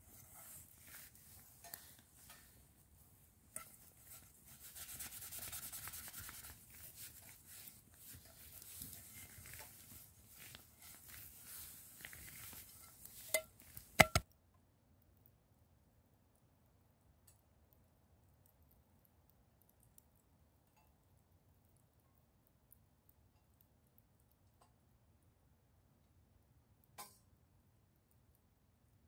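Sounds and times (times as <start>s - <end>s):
scouring metal pan with soil: 3.5s - 14.2s
sharp knocks: 14.0s - 14.2s.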